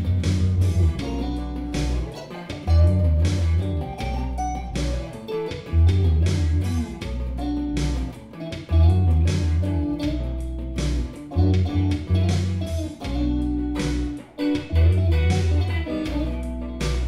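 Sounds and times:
guitar-led instrumental music: 0.0 - 17.0.

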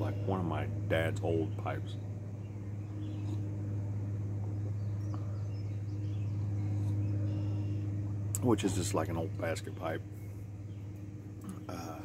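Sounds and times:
low mechanical hum: 0.0 - 12.0
faint bird chirps: 2.4 - 3.5, 4.5 - 8.0.

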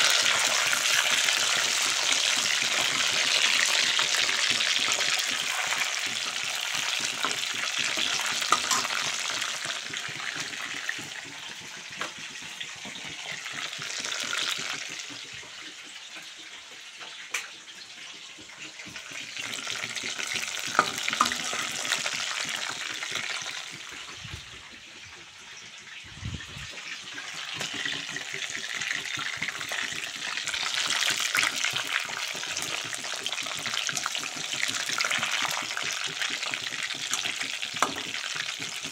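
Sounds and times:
food deep-frying in hot oil: 0.0 - 38.9.

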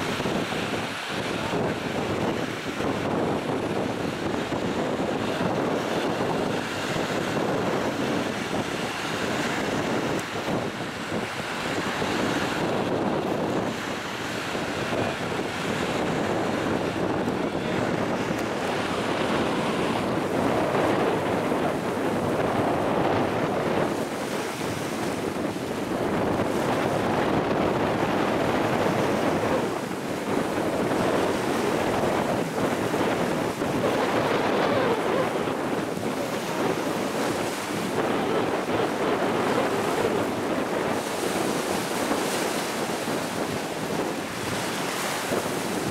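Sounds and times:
choppy water: 0.0 - 45.9
gusty wind on microphone: 0.0 - 45.9.

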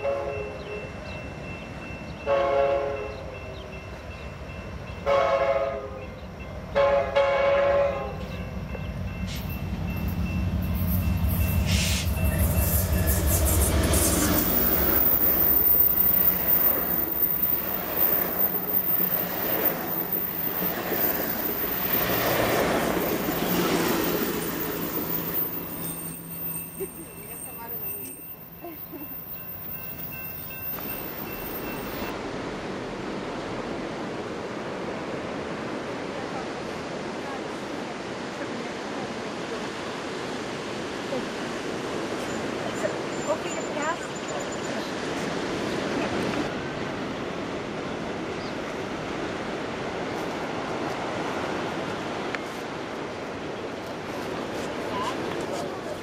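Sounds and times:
wind: 0.0 - 56.0
train wheels on rails rushing: 8.2 - 35.7
ocean surf: 8.4 - 56.0.

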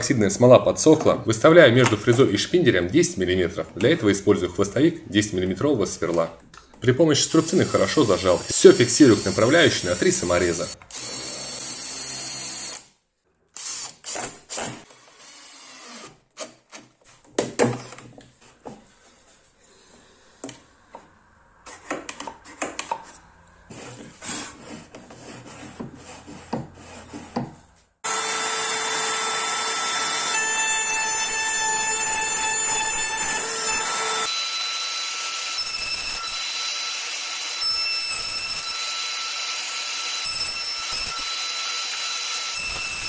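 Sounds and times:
cordless drill driving screw: 7.3 - 12.9
wooden parts and tools knocking: 16.8 - 18.9
router motor running: 28.1 - 30.4.

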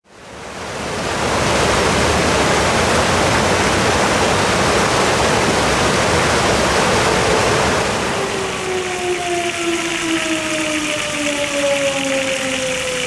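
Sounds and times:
water rushing over stones: 8.4 - 13.0.

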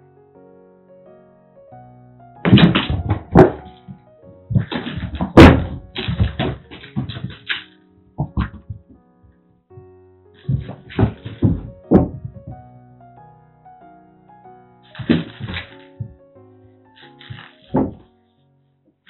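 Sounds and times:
soft background music: 0.0 - 19.0
cats thudding and scrabbling on carpet: 2.5 - 7.6, 8.2 - 9.0, 10.4 - 12.6, 14.9 - 16.2, 17.0 - 18.0.

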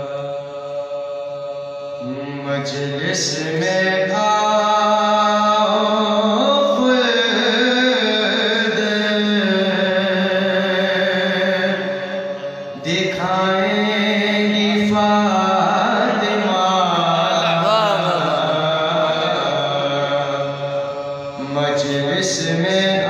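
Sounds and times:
man chanting in long held notes: 12.8 - 23.0.

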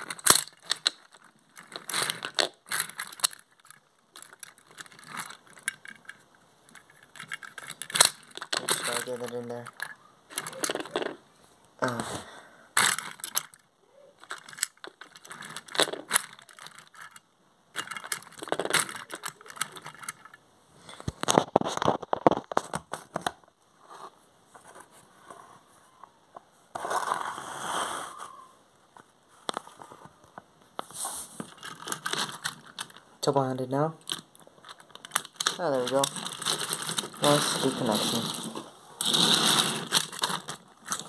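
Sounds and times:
plastic toy trains clicking: 0.0 - 11.2, 12.8 - 20.4, 31.4 - 33.4, 34.0 - 41.0
rustling scrape: 26.7 - 28.6, 30.8 - 32.8, 35.2 - 41.0.

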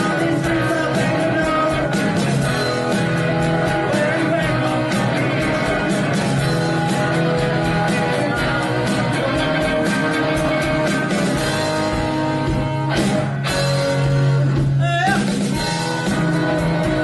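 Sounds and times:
rock band playing live: 0.0 - 17.0.

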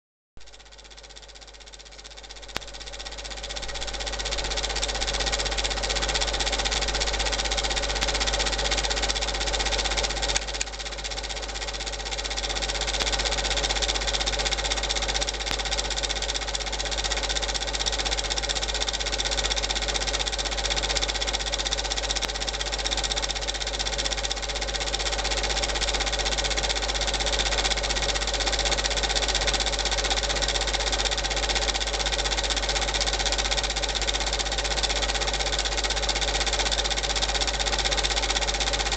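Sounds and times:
film projector whirring: 0.4 - 38.9.

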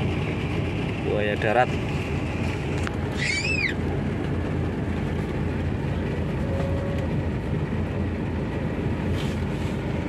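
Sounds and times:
bus engine rumble: 0.0 - 10.0.

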